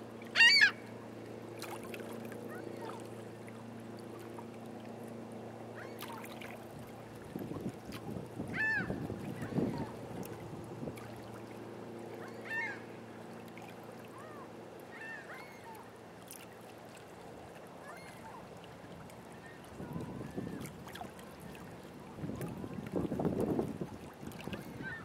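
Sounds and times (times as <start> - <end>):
low motor hum: 0.0 - 25.0
birds honking: 0.4 - 0.8
wind buffeting microphone: 7.2 - 11.0, 19.8 - 20.8, 22.1 - 25.0.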